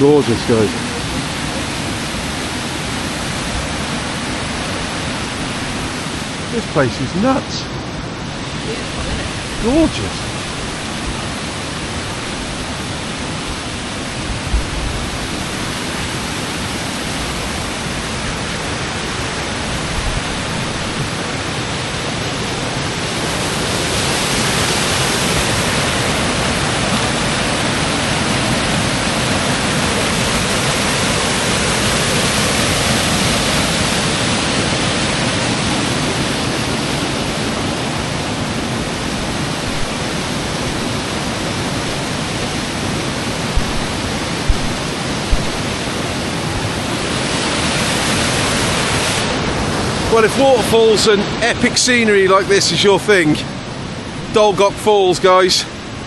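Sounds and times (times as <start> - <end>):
waterfall rushing over rocks: 0.0 - 56.0.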